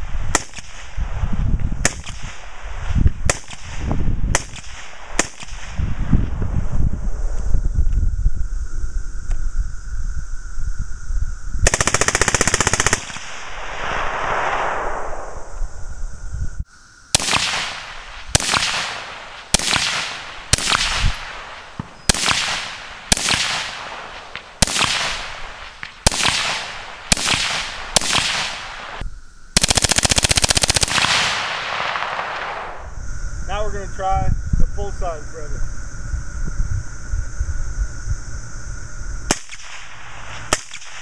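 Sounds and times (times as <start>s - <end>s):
suppressed rifle firing: 17.2s - 29.0s, 29.6s - 32.6s.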